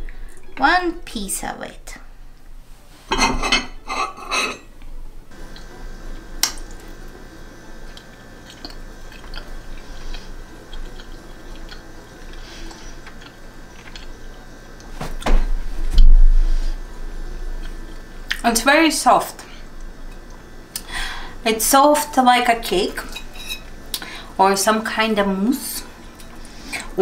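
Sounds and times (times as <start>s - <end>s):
fork scraping and clinking on plate: 3.1s - 4.7s, 23.1s - 23.7s
quiet chewing: 5.4s - 15.0s.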